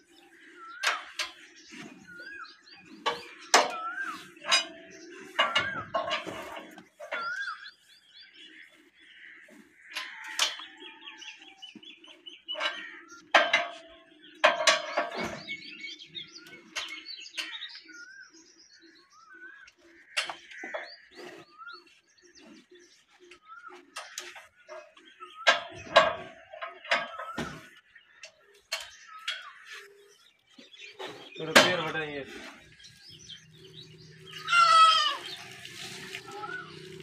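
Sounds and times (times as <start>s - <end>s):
small birds chirping: 0.0s - 37.0s.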